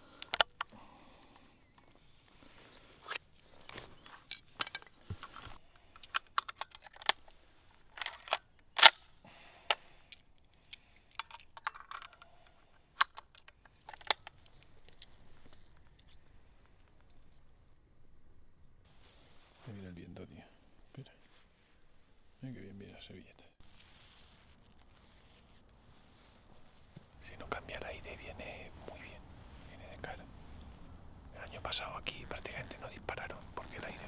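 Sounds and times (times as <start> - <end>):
rifle action clicking and clacking: 0.2 - 0.7, 4.2 - 7.3, 7.9 - 9.1, 10.1 - 15.1.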